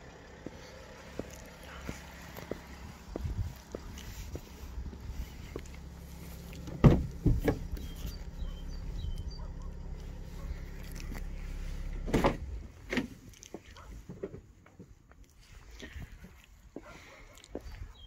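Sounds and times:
steady low rumble: 0.0s - 14.1s
door clunks: 6.6s - 8.2s, 12.0s - 13.2s.

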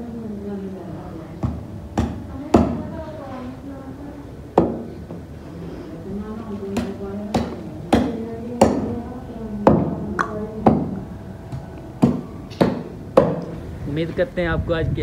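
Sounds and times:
cleaver chopping on wooden log: 6.8s - 8.9s, 12.0s - 13.5s.

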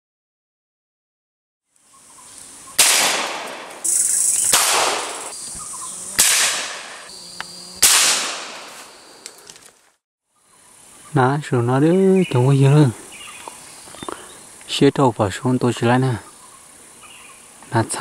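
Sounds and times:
gunshots ringing in forest: 2.8s - 5.4s, 6.2s - 7.0s, 7.8s - 8.9s.

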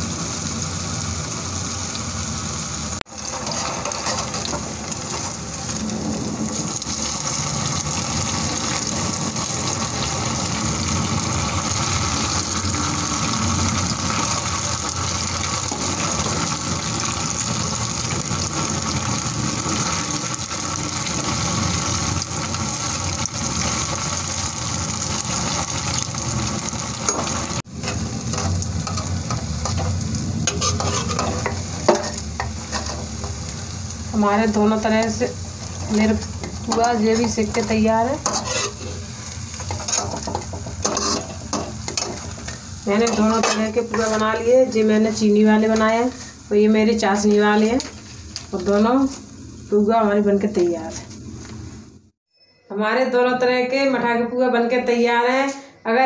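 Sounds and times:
fritters sizzling in hot oil: 0.0s - 52.2s
steel ladle stirring: 27.1s - 33.5s, 35.6s - 44.4s.

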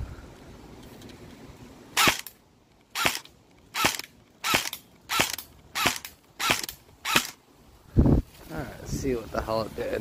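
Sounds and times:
airsoft rifle single shots: 2.0s - 2.4s, 3.0s - 7.4s.

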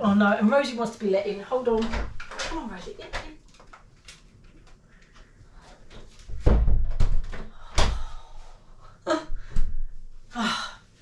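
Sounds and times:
door shutting with heavy thuds: 6.3s - 8.1s.

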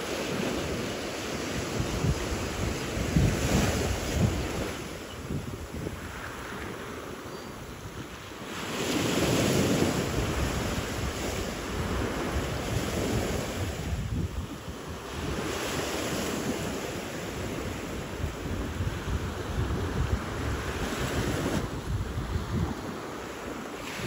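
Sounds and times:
small waves breaking on shore: 0.0s - 24.0s
wind buffeting microphone: 0.0s - 24.0s.

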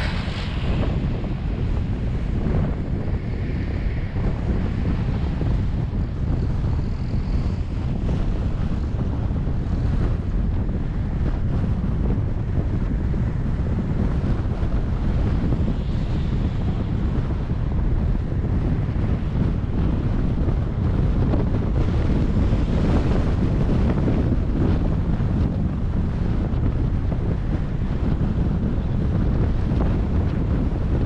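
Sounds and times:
car road noise: 0.0s - 11.5s
wind buffeting microphone: 0.0s - 31.0s.

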